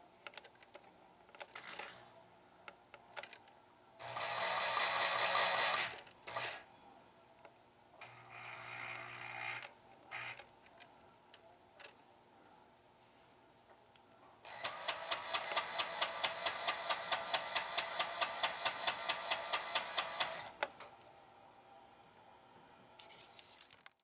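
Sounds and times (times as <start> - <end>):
small clicks and rattles: 2.9 - 3.5.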